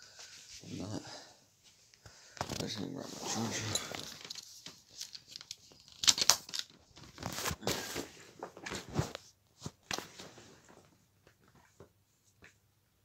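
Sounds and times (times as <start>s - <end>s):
plastic and cable rustling: 2.3s - 12.4s.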